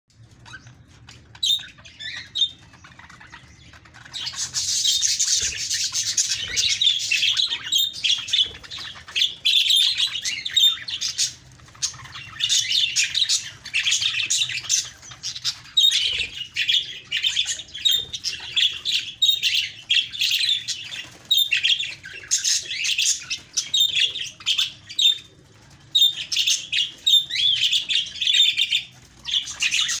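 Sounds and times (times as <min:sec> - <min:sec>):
budgerigars chirping and warbling: 0:00.1 - 0:30.0.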